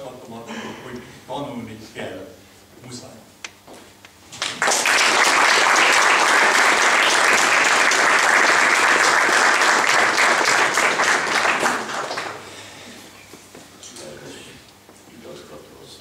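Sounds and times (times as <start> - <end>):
audience applauding: 4.4 - 12.6.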